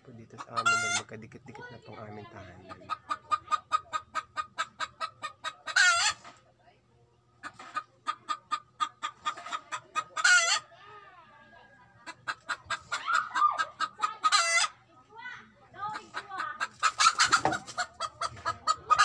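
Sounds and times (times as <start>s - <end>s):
hen cackling: 0.4s - 1.1s, 2.6s - 6.2s, 7.4s - 11.2s, 11.9s - 14.8s, 15.8s - 19.0s.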